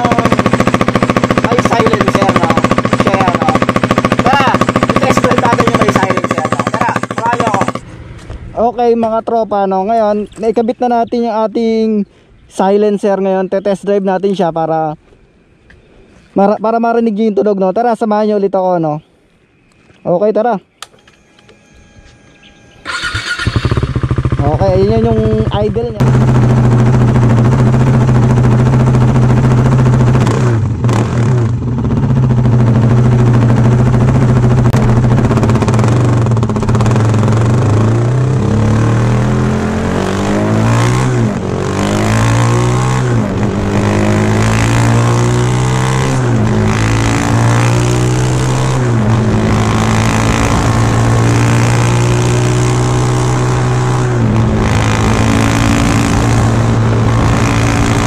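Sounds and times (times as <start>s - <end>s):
motorcycle engine revving: 0.0s - 8.4s, 21.6s - 58.0s.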